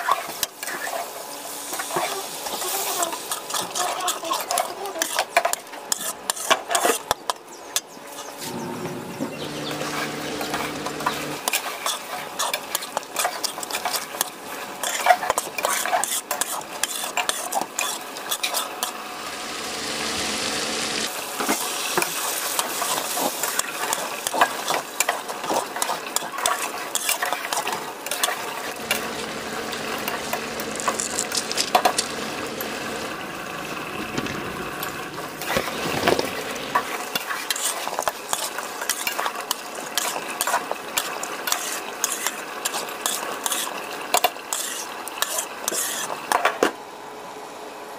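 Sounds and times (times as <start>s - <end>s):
spatula scraping metal pot: 2.8s - 7.1s, 14.8s - 19.0s, 44.5s - 46.2s
food sizzling: 8.5s - 46.2s.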